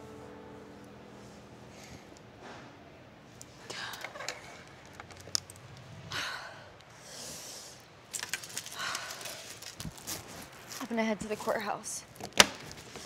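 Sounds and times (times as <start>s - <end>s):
soft rustling: 8.2s - 13.0s.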